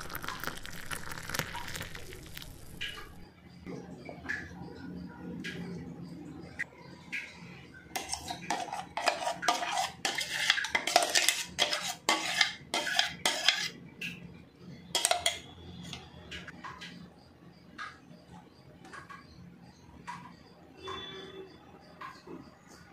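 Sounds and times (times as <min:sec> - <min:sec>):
paste scraped from jar: 0:08.0 - 0:13.8.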